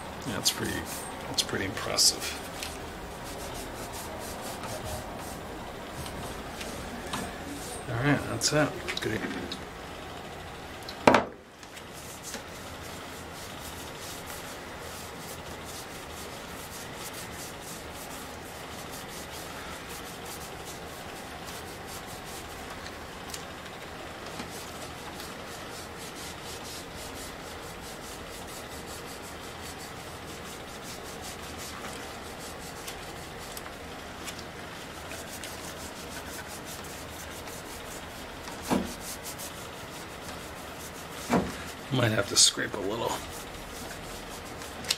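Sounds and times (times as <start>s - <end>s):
rag rubbing on metal: 0.0s - 5.5s, 11.9s - 22.6s, 24.3s - 33.6s, 35.0s - 44.8s.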